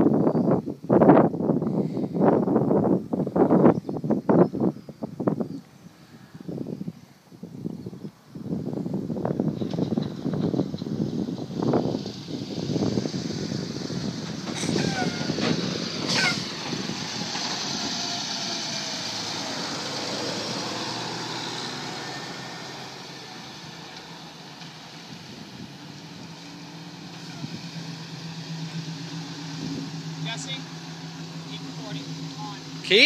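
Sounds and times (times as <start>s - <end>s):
passing vehicle tyre and engine noise: 0.0s - 33.0s
car engine low steady note: 23.0s - 33.0s.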